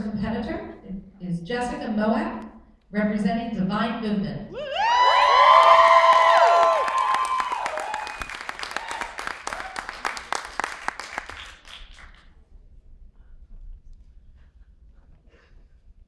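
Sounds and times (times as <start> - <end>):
whoops and cheers: 4.6 - 10.1
audience applauding: 5.0 - 12.3.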